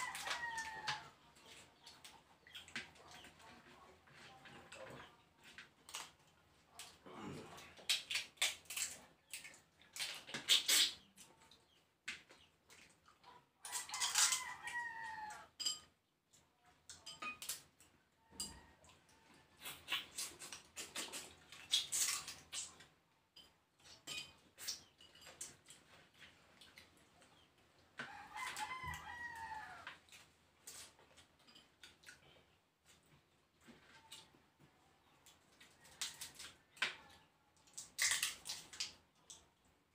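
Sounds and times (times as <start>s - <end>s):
slurping snails from shells: 6.8s - 11.2s, 19.0s - 23.0s
rooster crowing: 13.7s - 15.5s, 28.0s - 29.9s.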